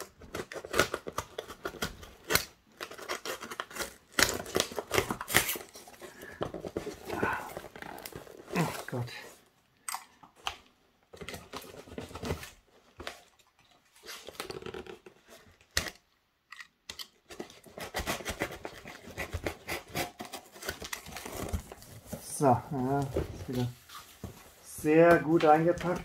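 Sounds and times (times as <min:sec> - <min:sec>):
packing tape tearing: 0:00.0 - 0:09.0, 0:14.0 - 0:21.9
tape scratching: 0:14.0 - 0:15.9.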